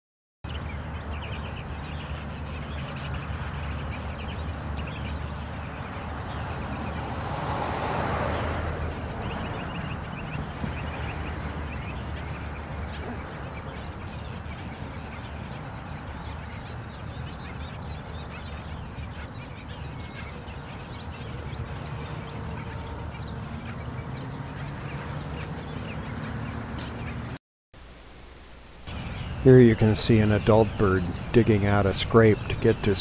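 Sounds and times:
seabirds calling: 0.5s - 27.4s, 28.4s - 33.0s.

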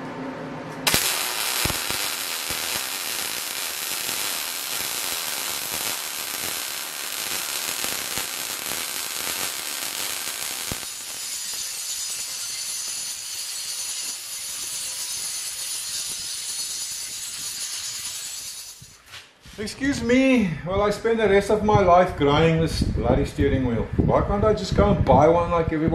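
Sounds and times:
welder crackling: 0.8s - 19.1s
angle grinder grinding metal: 0.9s - 19.0s.

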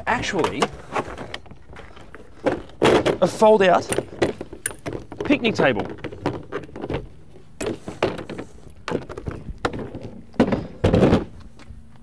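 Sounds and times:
table clattering on ground: 2.4s - 11.4s.

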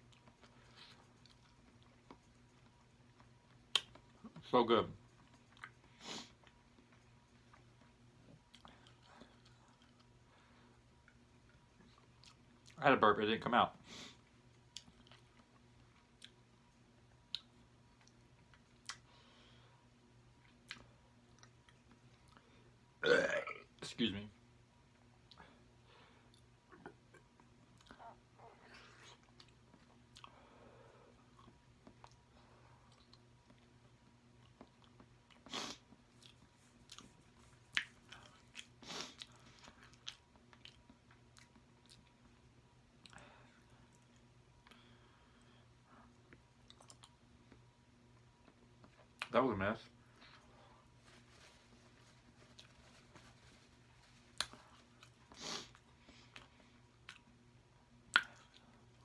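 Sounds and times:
person chewing food: 0.0s - 4.4s, 5.0s - 12.8s, 14.2s - 16.5s, 17.2s - 19.1s, 20.3s - 22.5s, 26.2s - 30.5s, 31.1s - 49.3s, 50.0s - 57.4s
mouth clicks and lip smacks: 1.1s - 4.4s, 58.1s - 58.7s
short burp: 23.0s - 23.7s
wet mouth clicks and smacks: 58.1s - 58.6s.

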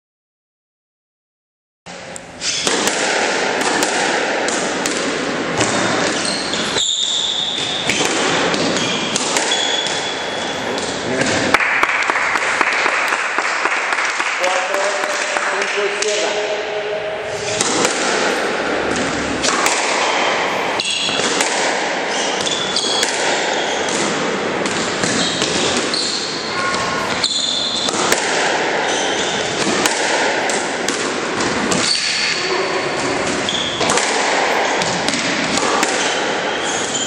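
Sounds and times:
squash racket hits: 1.9s - 37.0s
shoe squeaks on court floor: 2.4s - 2.7s, 6.0s - 8.0s, 8.6s - 11.0s, 20.8s - 21.2s, 22.1s - 24.0s, 25.1s - 27.9s, 28.8s - 29.6s, 31.8s - 33.8s, 36.0s - 37.0s
ball smacking walls and floor: 2.4s - 14.4s, 17.3s - 37.0s.

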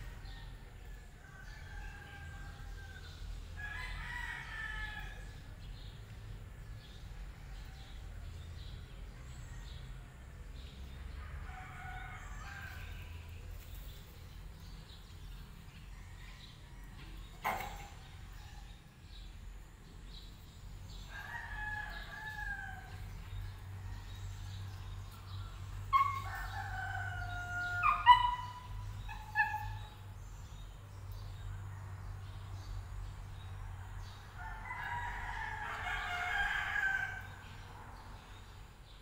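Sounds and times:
rooster crowing: 21.1s - 23.0s, 25.9s - 28.5s, 34.4s - 37.4s.

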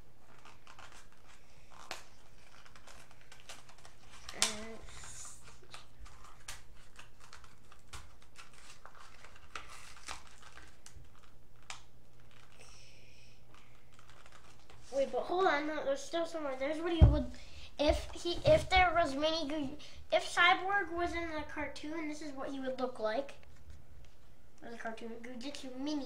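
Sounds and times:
plastic packaging crinkling and tearing: 0.1s - 12.8s, 13.5s - 15.3s.

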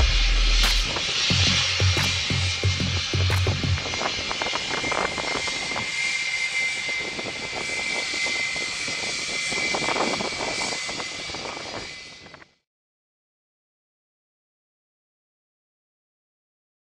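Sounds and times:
jet engines roaring: 0.0s - 12.4s.

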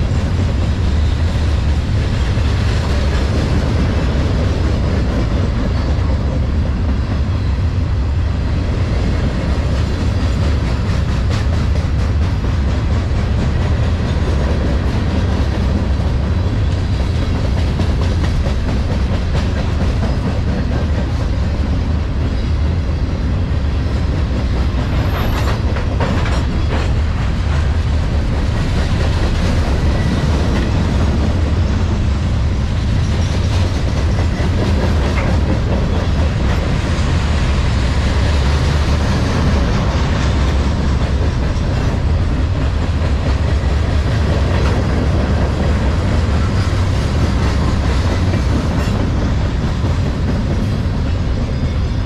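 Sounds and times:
clickety-clack over rail joints: 0.0s - 52.0s
train wheels rumbling on rail: 0.0s - 52.0s.

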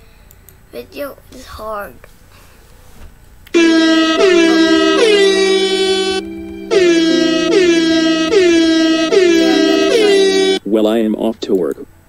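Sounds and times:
brassy horn-like music: 3.6s - 10.6s.

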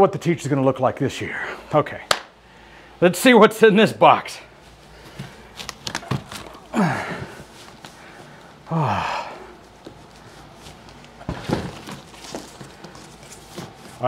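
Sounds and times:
man exhaling with effort: 6.7s - 7.5s, 8.7s - 9.6s
cardboard box rustling: 10.7s - 14.0s.

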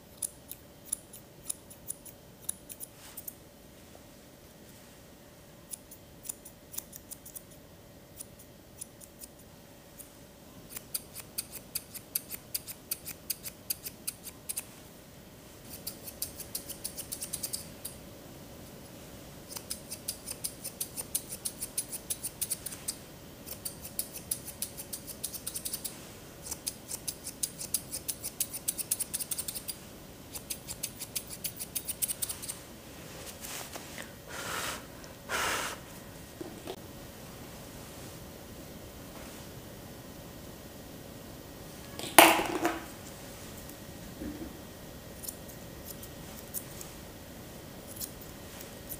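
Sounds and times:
scissors snipping fur: 0.1s - 3.4s, 5.7s - 7.6s, 8.2s - 10.1s, 10.7s - 14.7s, 15.7s - 18.0s, 19.5s - 32.6s, 45.2s - 46.9s, 47.9s - 48.3s.

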